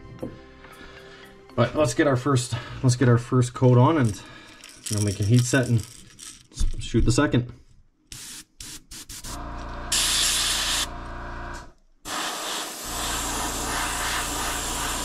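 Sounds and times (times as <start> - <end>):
airbrush spraying hiss: 8.1 - 10.9, 12.1 - 15.0
low hum: 9.4 - 11.8.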